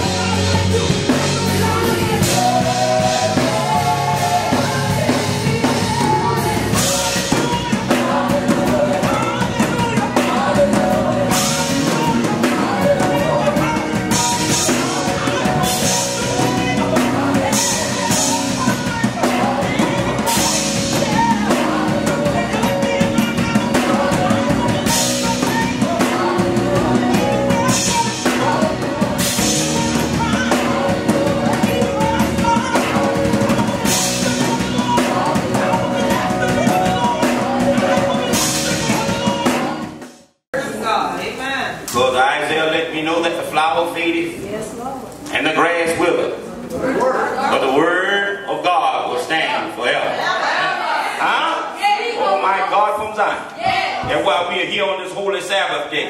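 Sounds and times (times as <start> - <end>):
backing singers: 0.0 - 40.1, 48.8 - 54.9
band with drums and cymbals: 0.0 - 41.0.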